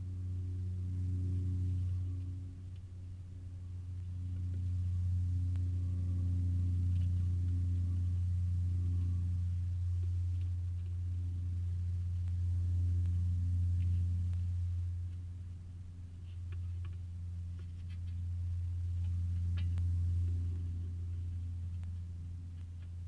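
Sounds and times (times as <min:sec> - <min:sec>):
low-pitched hum with overtones: 0:00.0 - 0:23.0
faint ticks: 0:13.0 - 0:14.5, 0:16.2 - 0:23.0.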